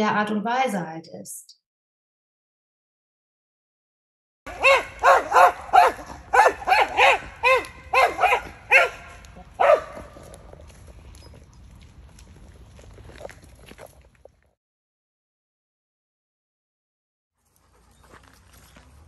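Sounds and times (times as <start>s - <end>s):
dog barking: 4.5s - 10.1s.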